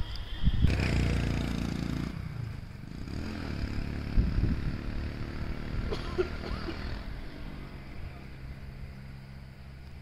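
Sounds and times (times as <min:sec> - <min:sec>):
motorcycle engine running: 0:00.7 - 0:07.1.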